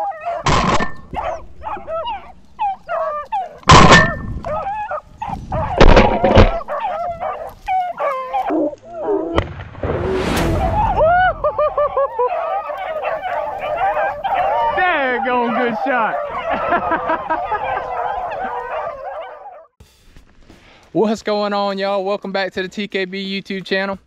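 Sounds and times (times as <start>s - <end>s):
hounds baying: 0.0s - 9.4s, 10.7s - 19.8s
shotgun shots: 3.7s - 4.3s.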